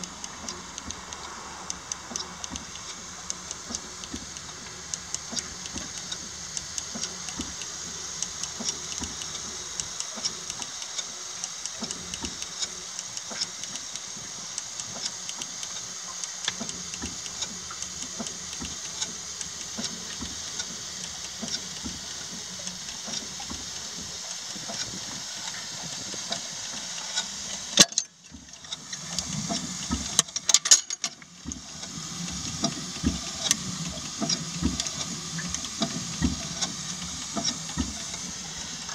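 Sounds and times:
steam engine ticking: 0.0 - 38.9
steam hissing: 0.0 - 38.9
sharp click: 26.2 - 31.6.

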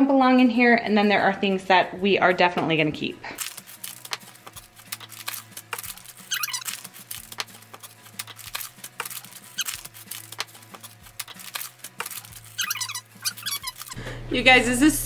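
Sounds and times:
packets crinkling: 3.4 - 14.0
high squeaks: 5.8 - 7.0, 9.1 - 10.0, 12.0 - 14.0.

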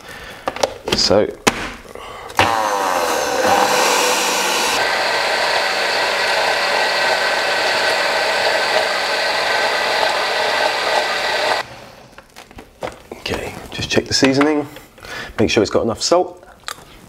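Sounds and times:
blender motor whining: 2.4 - 12.2.

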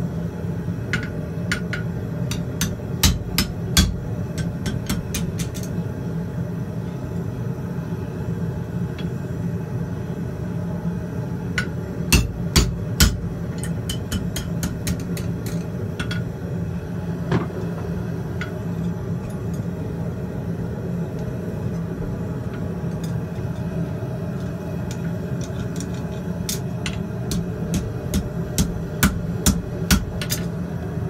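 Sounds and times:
steady forge roar: 0.0 - 31.0
hammer striking steel on anvil: 1.0 - 5.7, 11.6 - 15.3, 26.9 - 30.4.

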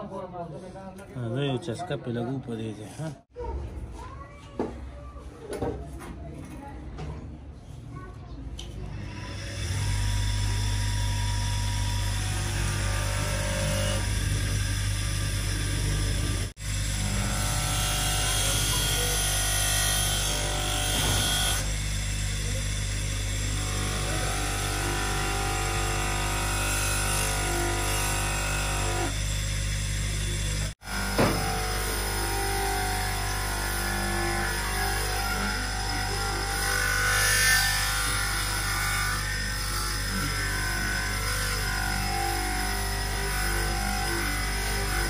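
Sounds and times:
electric power tool running: 8.9 - 45.0.

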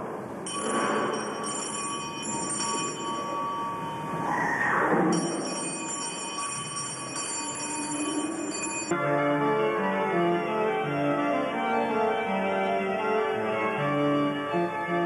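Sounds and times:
bells ringing: 0.4 - 9.0.

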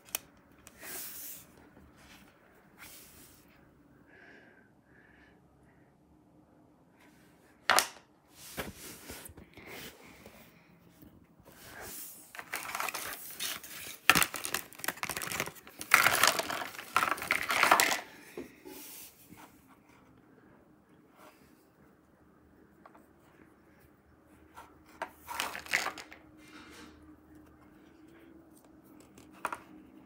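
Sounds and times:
plastic packaging crackling: 12.3 - 18.0.

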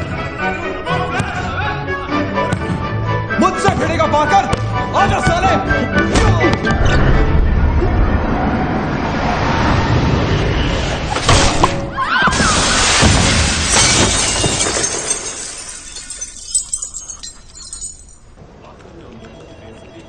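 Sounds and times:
film score music: 0.0 - 12.0
glass shattering: 12.5 - 18.4
glass shards tinkling: 13.6 - 18.4.

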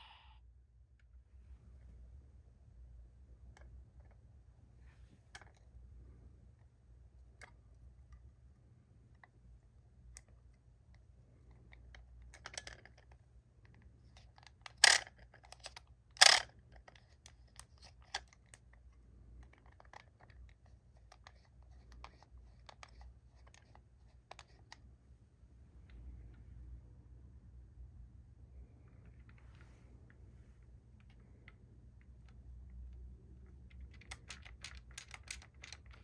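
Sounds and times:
plastic toy clicks and rubbing: 5.3 - 5.7, 11.5 - 24.8, 33.5 - 36.0.

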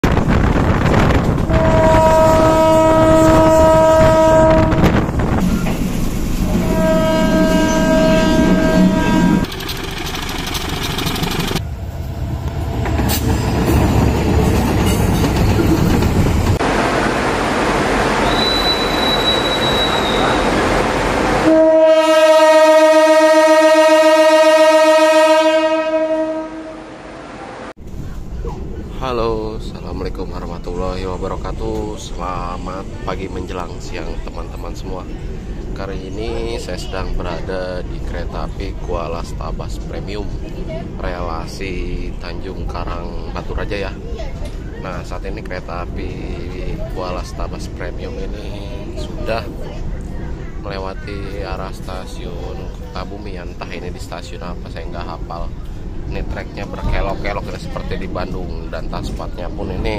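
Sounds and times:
train rumble and rail clatter: 0.0 - 59.9
locomotive horn blasts: 1.4 - 5.0, 6.5 - 9.5, 21.4 - 27.7.

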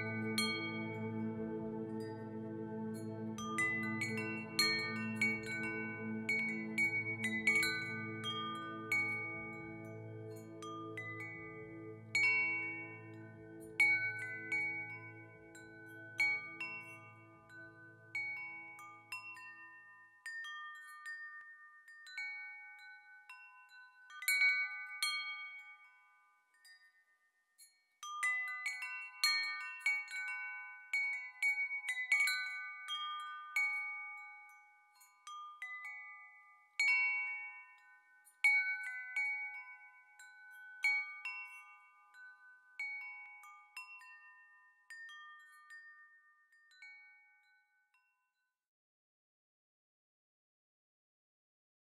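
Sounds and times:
low sustained drone: 0.0 - 13.6
wind chimes ringing: 0.0 - 48.5.

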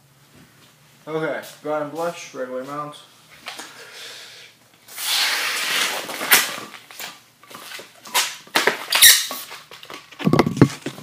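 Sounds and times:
balloon rubber squeaking: 4.9 - 6.4, 8.9 - 9.4.

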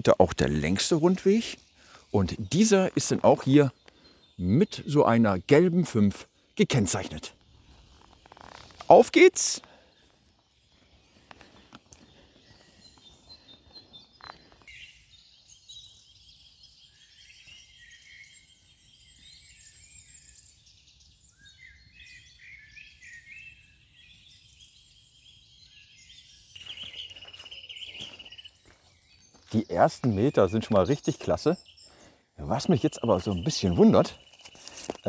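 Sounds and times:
songbirds singing: 0.0 - 35.0.

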